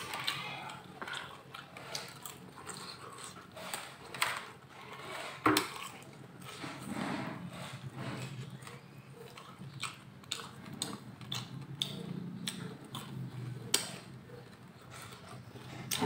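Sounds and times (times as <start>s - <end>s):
crunchy chewing: 0.0s - 16.0s.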